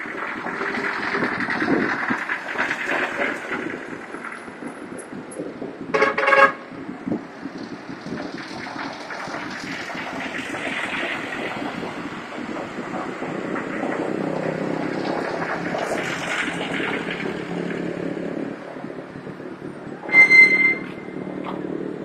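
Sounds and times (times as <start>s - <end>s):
road traffic passing: 0.0s - 22.0s
vehicle horn double honk: 6.0s - 6.6s, 20.1s - 21.1s.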